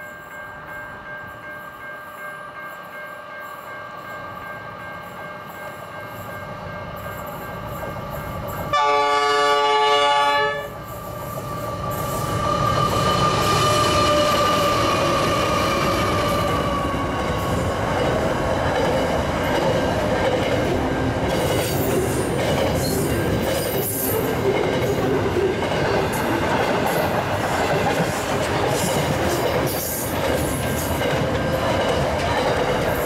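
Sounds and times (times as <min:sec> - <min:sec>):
diesel locomotive engines: 0:00.0 - 0:33.0
steady locomotive whine: 0:00.0 - 0:33.0
train horn blast: 0:08.7 - 0:10.8.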